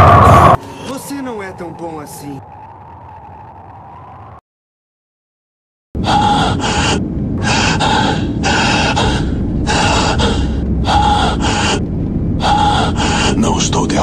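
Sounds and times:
man gasping breaths: 6.0 - 13.4
low rumble: 6.0 - 14.0.

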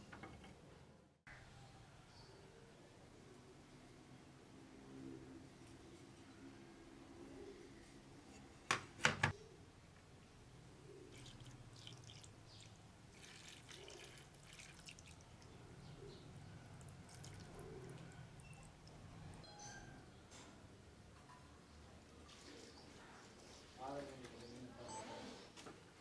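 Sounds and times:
liquid splashing and trickling: 11.1 - 15.6, 16.8 - 17.6.

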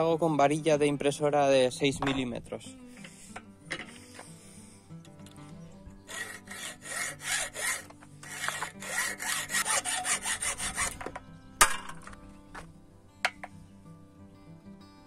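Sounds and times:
hacksaw cutting steel rod: 6.1 - 11.2.

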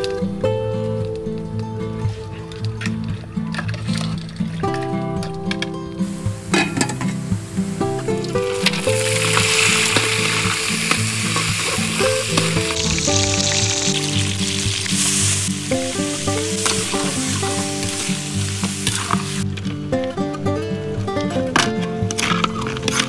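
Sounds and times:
background music: 0.0 - 23.0
crab and garlic sizzling in wok: 6.0 - 19.5
metal ladle turning food: 6.0 - 19.5, 21.6 - 23.0.

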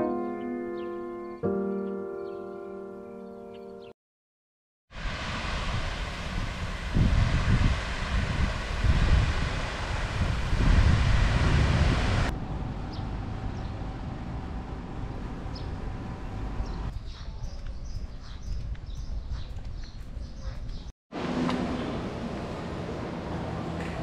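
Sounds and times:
wind rushing over microphone: 4.9 - 13.2, 15.5 - 20.9
low rumbles of wind buffeting: 5.0 - 20.9.

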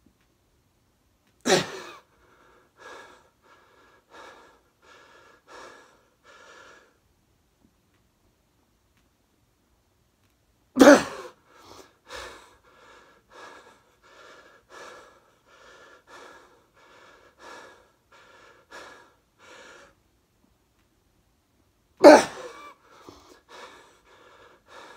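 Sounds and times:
man panting hard: 1.5 - 7.0, 11.3 - 20.0, 22.0 - 24.9.

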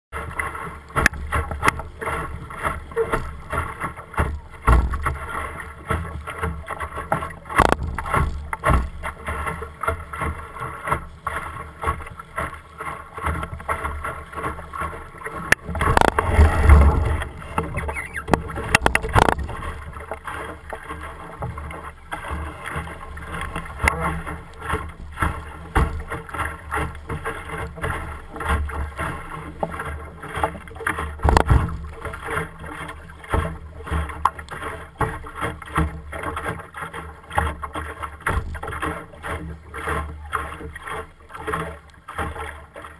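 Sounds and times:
water splashing against hull: 0.1 - 42.9
short knocks: 15.5 - 19.6.

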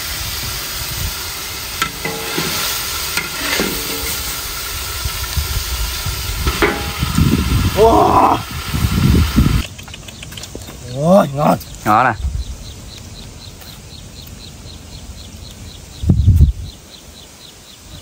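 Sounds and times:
hot oil sizzling: 0.0 - 9.6
metal ladle scraping a wok: 1.7 - 5.0, 6.4 - 7.5.

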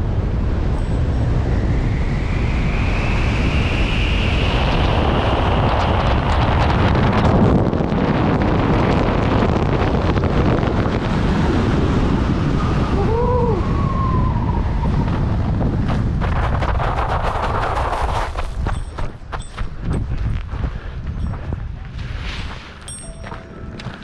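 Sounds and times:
wind buffeting microphone: 0.0 - 24.0
rising and falling tone: 12.6 - 15.6, 22.9 - 24.0.

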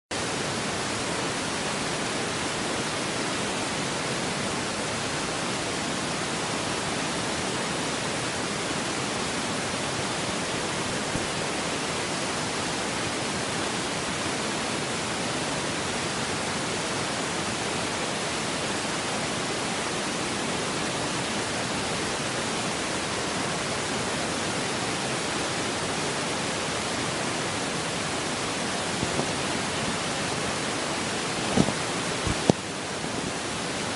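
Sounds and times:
steady static hiss: 0.1 - 33.9.

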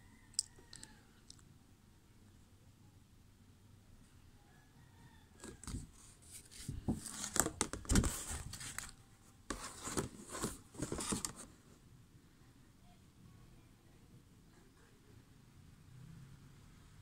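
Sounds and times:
pencil box rustling and scraping: 5.4 - 11.6.

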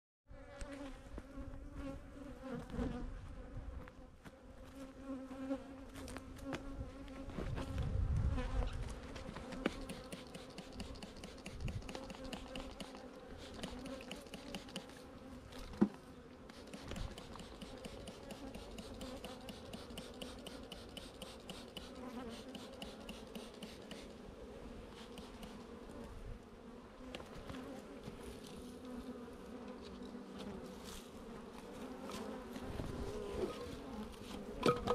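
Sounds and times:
honeybees buzzing: 0.4 - 34.9
sharp click: 9.6 - 13.0.

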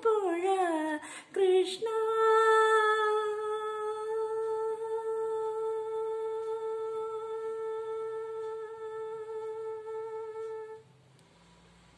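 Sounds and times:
woman humming a held note: 5.2 - 10.9.

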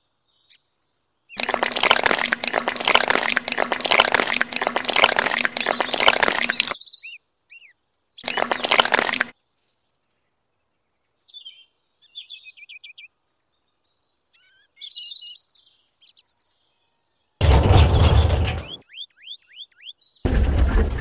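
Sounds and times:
wet cement slurry pouring: 1.4 - 6.8, 8.2 - 9.3
faint bird chirps: 5.6 - 8.5, 9.4 - 17.1.

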